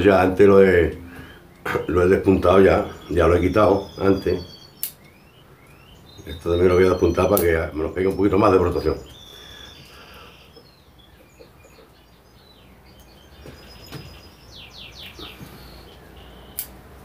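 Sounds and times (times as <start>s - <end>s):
small birds chirping: 0.0s - 17.0s
sharp clicks: 4.8s - 5.8s, 15.9s - 17.0s.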